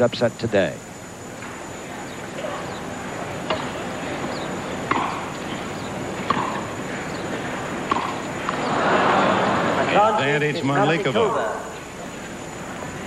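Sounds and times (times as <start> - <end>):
crowd background noise: 0.0 - 13.0
racket striking tennis ball: 4.8 - 6.8, 7.4 - 8.6.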